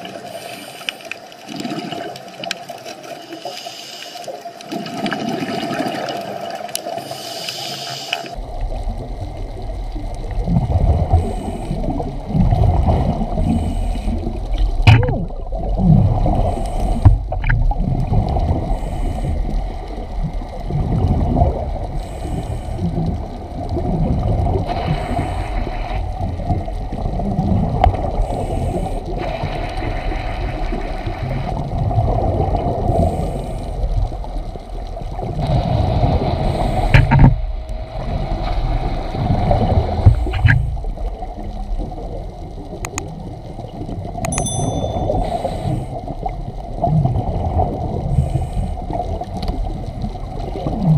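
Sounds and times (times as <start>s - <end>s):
underwater water rumble and gurgling: 0.0s - 50.9s
scuba diver exhaled bubbles: 4.7s - 6.6s, 8.2s - 34.0s.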